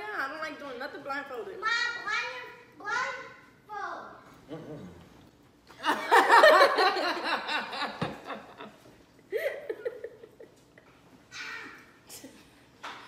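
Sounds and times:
hearty adult laughter: 5.8s - 10.8s.

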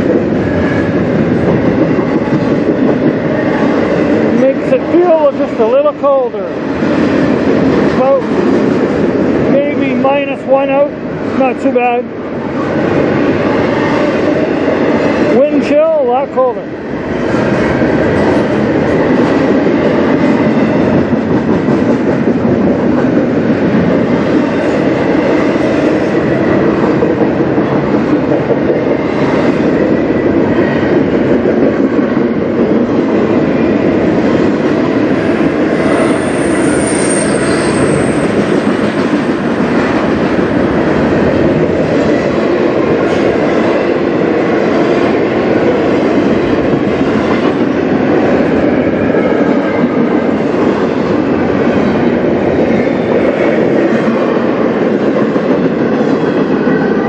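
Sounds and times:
freight train wheels clattering: 0.0s - 57.0s
high wheel squeal: 35.8s - 38.8s.

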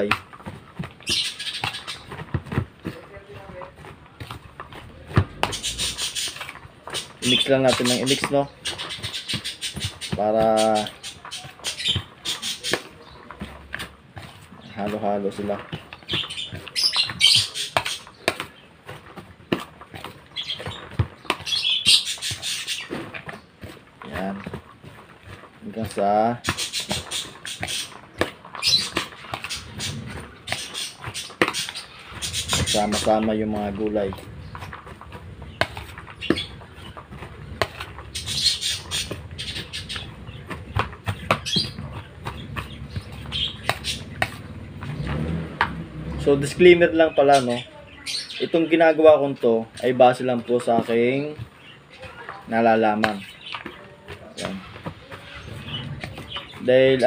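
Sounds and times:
hands mixing chopped vegetables: 0.0s - 57.0s
parrots squawking and chirping: 0.4s - 2.4s, 4.9s - 13.2s, 15.7s - 18.7s, 20.0s - 25.4s, 26.2s - 48.6s, 53.2s - 57.0s.

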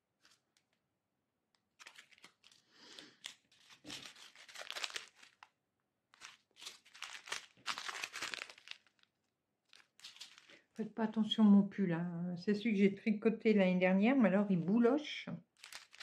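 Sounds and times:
plastic bags crinkling: 0.2s - 0.8s, 1.6s - 10.8s, 15.6s - 16.0s.

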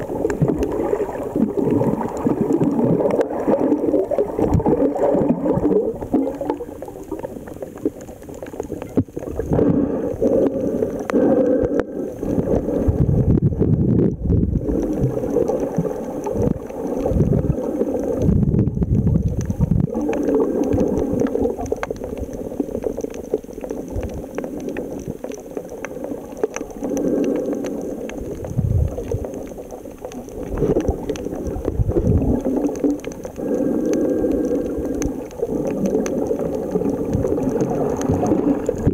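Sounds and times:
underwater gurgling and sloshing: 0.0s - 38.9s.

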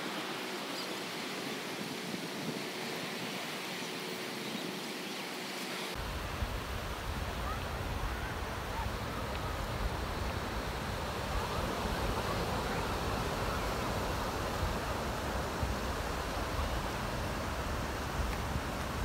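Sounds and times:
ocean surf breaking: 5.8s - 19.0s
wind on microphone: 6.0s - 19.0s.

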